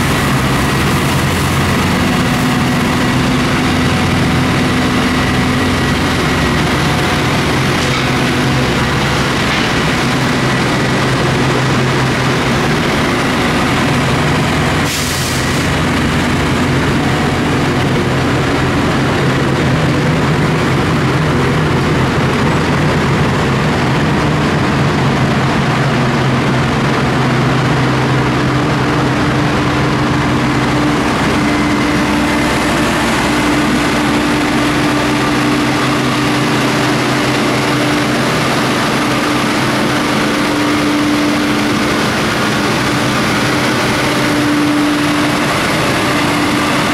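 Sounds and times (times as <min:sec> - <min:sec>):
diesel engines droning: 0:00.0 - 0:46.9.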